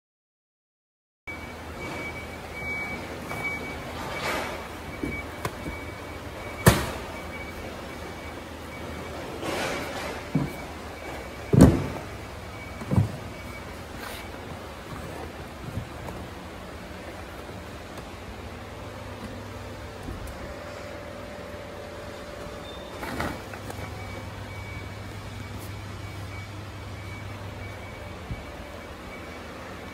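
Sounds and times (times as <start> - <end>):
factory background hum: 1.3 - 29.9
crate set down heavy thud: 11.5 - 12.1.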